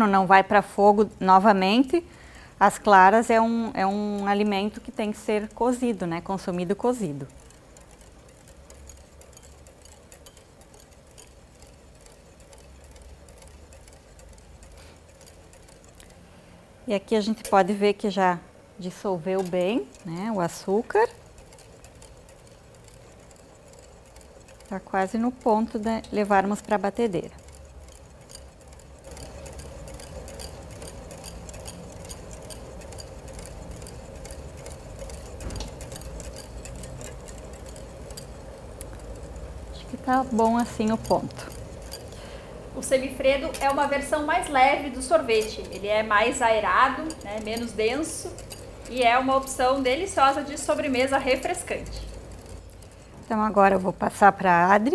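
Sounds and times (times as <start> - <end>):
low steady hum: 0.0 - 54.9
whisk scraping a metal bowl: 0.0 - 54.9.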